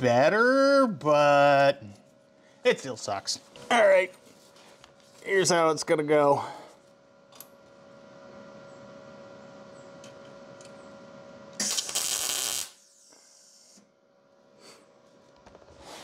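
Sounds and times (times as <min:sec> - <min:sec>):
steady low hum: 0:00.0 - 0:16.0
welding arc sizzle: 0:11.5 - 0:13.9.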